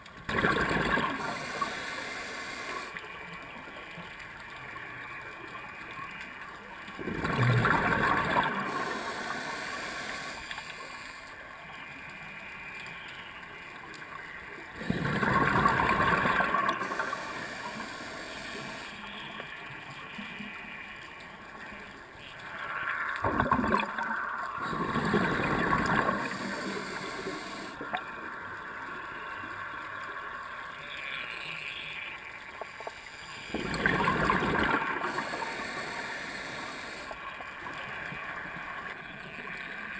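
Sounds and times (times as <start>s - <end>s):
faint steady hiss: 0.0s - 39.9s
bubbles gurgling underwater: 0.3s - 1.6s, 7.0s - 9.1s, 14.8s - 17.2s, 23.2s - 26.8s, 33.5s - 35.5s.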